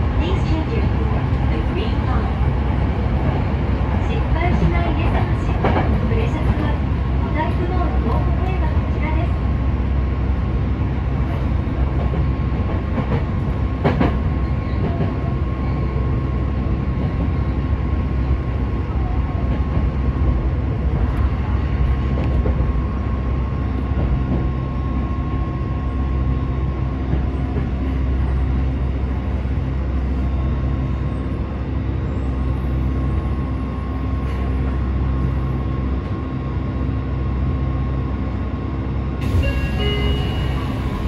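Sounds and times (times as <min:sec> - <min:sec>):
train wheels rumbling on rail: 0:00.0 - 0:41.0
high whine: 0:39.2 - 0:41.0.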